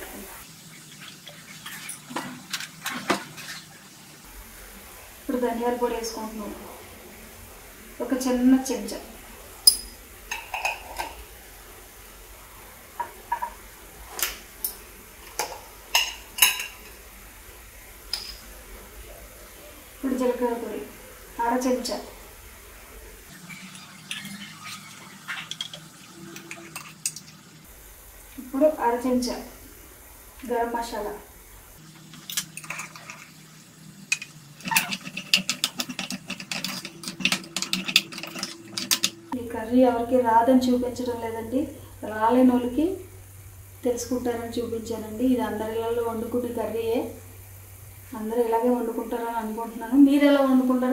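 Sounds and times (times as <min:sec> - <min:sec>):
food sizzling in a pan: 0:00.0 - 0:50.9
spoons and containers clinking: 0:01.6 - 0:03.6, 0:09.6 - 0:11.2, 0:14.6 - 0:17.1, 0:23.4 - 0:27.4, 0:32.1 - 0:33.4, 0:34.1 - 0:39.4
metal spatula scraping frying pan: 0:23.5 - 0:27.3, 0:34.1 - 0:39.4.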